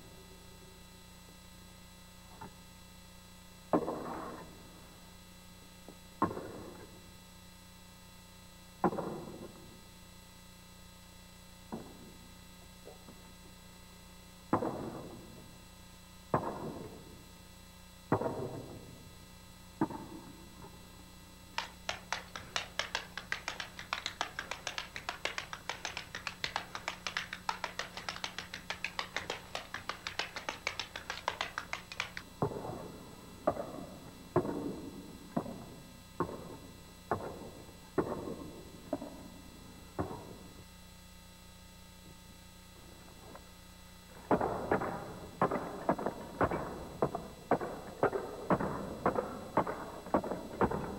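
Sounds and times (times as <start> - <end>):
tap shoes on wooden floor: 21.6 - 32.6.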